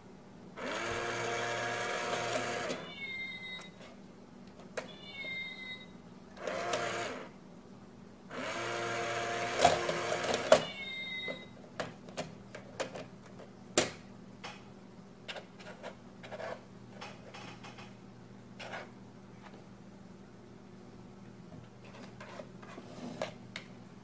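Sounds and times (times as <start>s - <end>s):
toy motor whirring: 0.6s - 2.8s, 6.4s - 7.3s.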